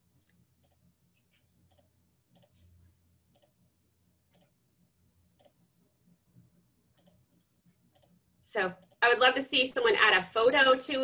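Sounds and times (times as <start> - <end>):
computer mouse clicks: 0.2 - 2.6, 3.3 - 3.6, 4.3 - 4.6, 5.4 - 5.6, 6.9 - 8.2, 8.8 - 9.0.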